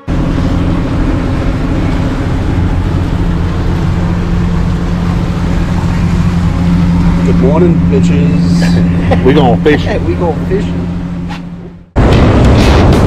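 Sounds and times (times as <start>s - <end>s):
outboard motor humming: 0.0s - 12.5s.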